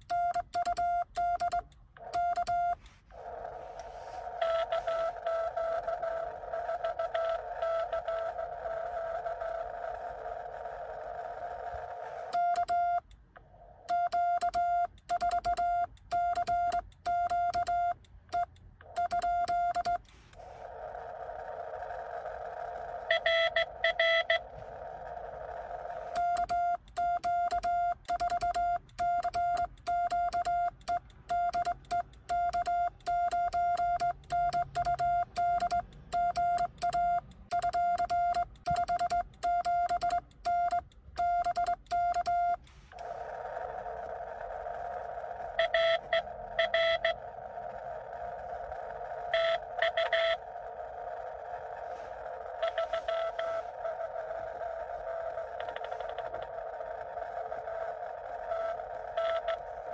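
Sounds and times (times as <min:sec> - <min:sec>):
morse code sidetone: 0:00.0 - 0:09.6, 0:12.2 - 0:13.2, 0:13.8 - 0:20.2, 0:23.1 - 0:24.5, 0:26.0 - 0:43.0, 0:45.4 - 0:47.2, 0:49.3 - 0:50.4, 0:52.5 - 0:54.1, 0:55.0 - 0:56.5, 0:58.5 - 0:59.7
weak distant morse bursts: 0:01.4 - 0:29.4, 0:30.0 - 0:59.9
radio receiver hiss: 0:42.6 - 0:57.2.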